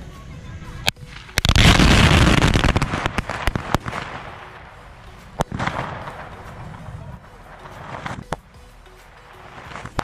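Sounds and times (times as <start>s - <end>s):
rapid firecracker crackling: 0.0s - 10.0s
firecracker bangs: 0.9s - 8.4s.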